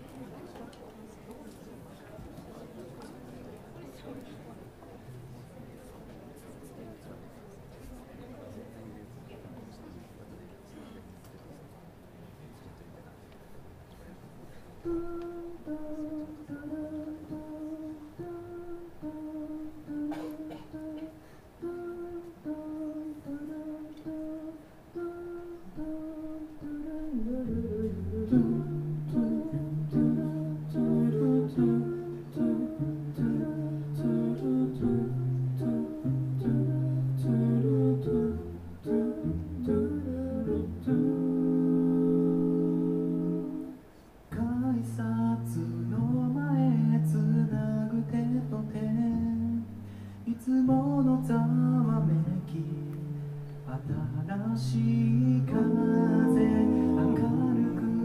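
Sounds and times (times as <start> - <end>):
a cappella group singing: 14.8 - 58.0.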